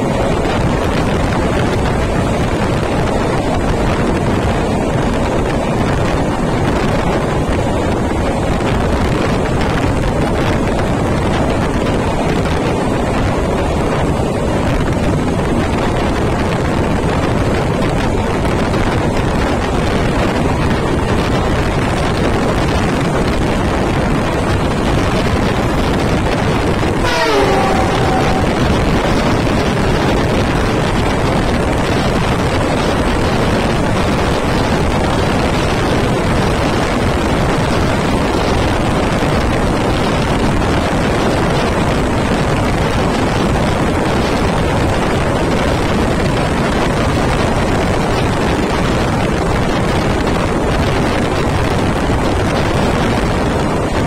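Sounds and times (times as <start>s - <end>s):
train wheels rumbling on rails: 0.0s - 54.0s
wind rushing on microphone: 0.0s - 54.0s
brief falling squeal: 27.0s - 28.9s.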